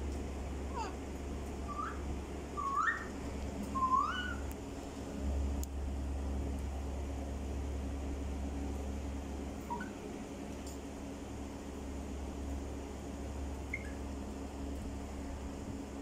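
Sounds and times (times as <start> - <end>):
steady low hum: 0.0 - 16.0
parakeet whistles: 1.6 - 2.0, 2.6 - 4.5, 9.7 - 10.0.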